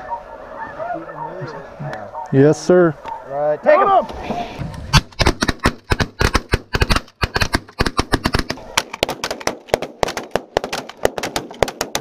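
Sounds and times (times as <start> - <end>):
shotgun fire: 4.9 - 12.0.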